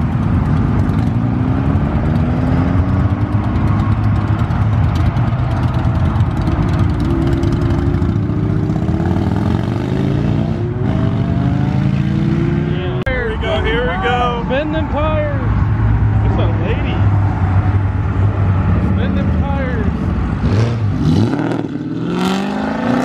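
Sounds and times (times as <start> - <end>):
motorcycle engines accelerating: 0.0 - 23.0.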